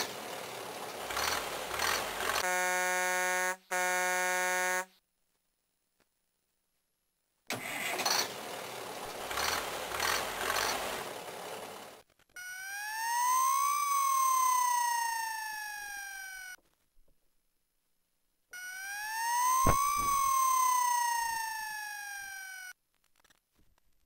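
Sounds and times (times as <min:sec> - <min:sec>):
toy engine-start rumble: 0:00.0 - 0:02.4, 0:07.5 - 0:12.0
toy siren: 0:12.4 - 0:16.6, 0:18.5 - 0:22.8.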